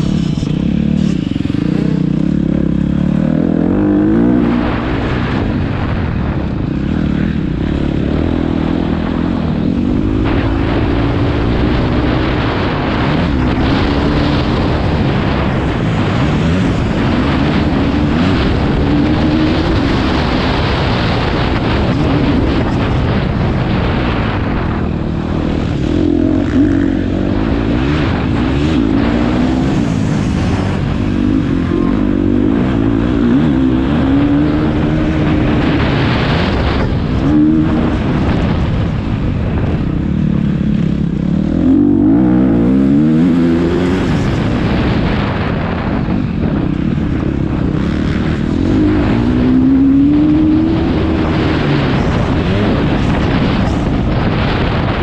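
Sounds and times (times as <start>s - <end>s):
motocross bike engines revving: 0.0s - 55.0s
steady rumbling din: 0.0s - 55.0s.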